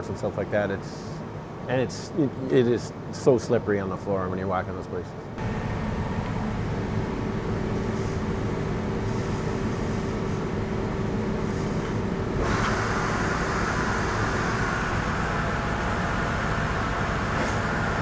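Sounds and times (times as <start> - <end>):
lathe humming: 5.4 - 18.0
mist collector drawing air: 11.3 - 18.0.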